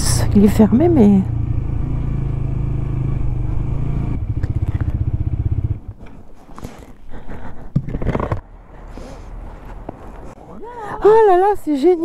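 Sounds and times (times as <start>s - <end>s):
motorcycle engine idling: 0.0s - 6.1s.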